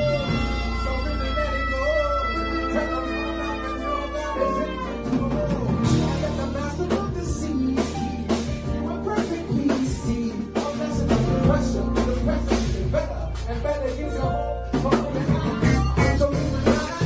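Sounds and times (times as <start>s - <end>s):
drum kit beat: 0.0s - 17.0s
electric bass line: 0.0s - 17.0s
person singing into microphone: 0.0s - 17.0s.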